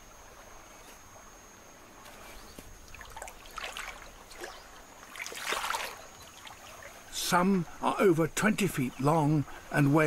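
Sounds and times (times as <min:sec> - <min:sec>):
scuffing and splashing: 0:02.1 - 0:06.9
water trickling: 0:02.8 - 0:07.7.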